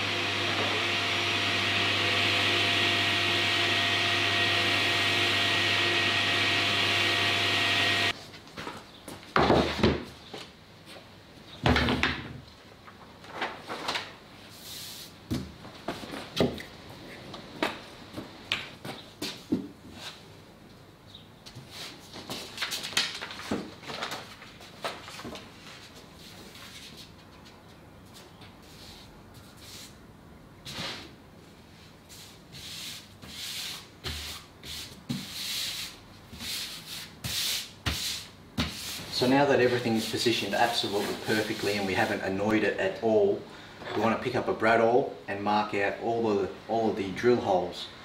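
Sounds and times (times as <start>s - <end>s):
paper rustle: 12.9s - 14.2s, 21.8s - 27.6s
hands rubbing paper on board: 32.1s - 42.3s.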